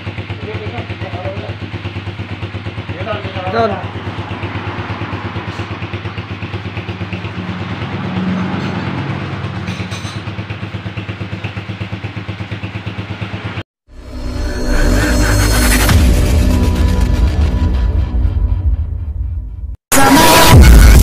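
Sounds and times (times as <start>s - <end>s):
motorcycle engine idling: 0.0s - 13.6s.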